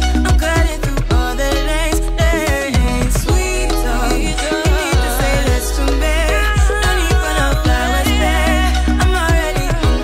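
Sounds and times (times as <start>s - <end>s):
music with deep bass and drums: 0.0s - 10.0s.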